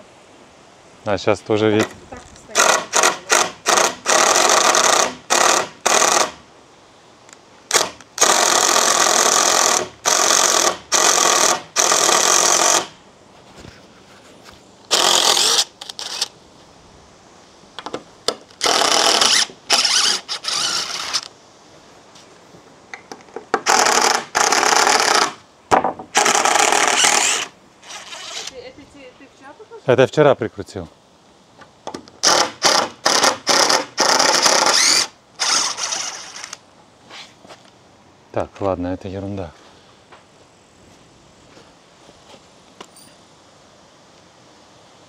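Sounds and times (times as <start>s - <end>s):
ratchet strap clicking: 32.2s - 36.6s.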